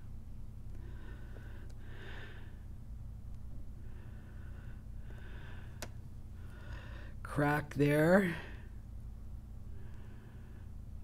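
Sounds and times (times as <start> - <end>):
low steady hum: 0.0 - 11.0
person breathing slowly: 0.7 - 2.8, 3.6 - 7.2, 9.6 - 11.0.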